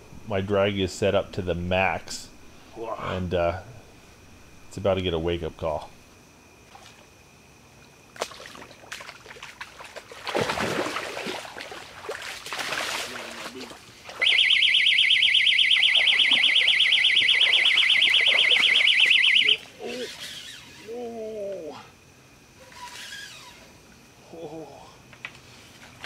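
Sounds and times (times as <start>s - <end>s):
water splashing: 8.1s - 14.8s, 15.6s - 20.4s
warbling electronic bite alarm: 14.2s - 19.7s.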